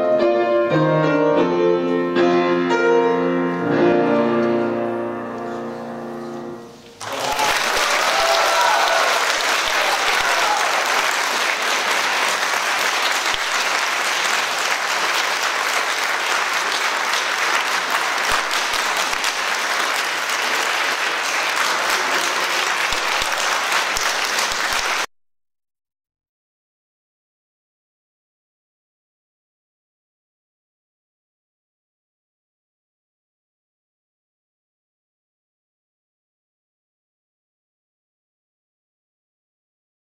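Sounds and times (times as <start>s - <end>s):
audience applauding: 7.0s - 25.1s.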